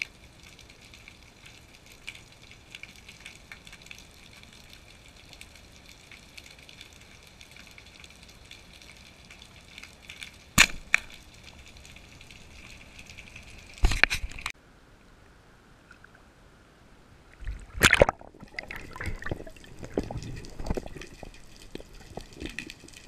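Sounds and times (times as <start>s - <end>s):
faint underwater crackling: 0.0s - 16.4s, 17.0s - 23.0s
speargun sharp crack: 10.6s - 11.1s.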